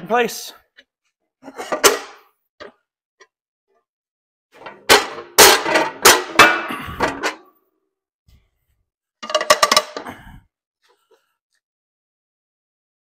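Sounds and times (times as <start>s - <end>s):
sheet metal clanking on steel die: 4.6s - 7.4s.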